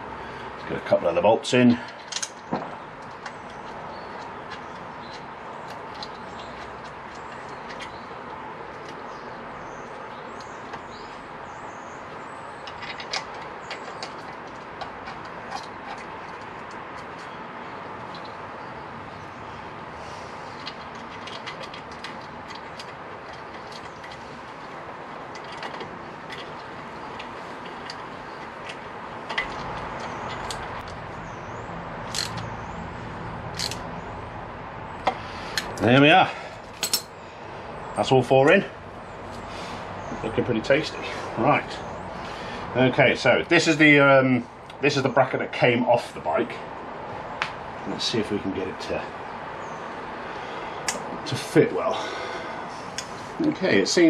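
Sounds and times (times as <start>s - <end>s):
metal bolts clicking and clinking: 1.8s - 8.0s, 12.6s - 17.3s, 20.6s - 24.2s, 25.3s - 31.1s, 32.0s - 32.5s, 33.5s - 33.9s, 36.7s - 37.2s
metallic clicks of bolts threading: 32.0s - 32.5s, 33.5s - 33.9s, 36.7s - 37.1s
sharp metallic clink: 36.8s - 37.2s.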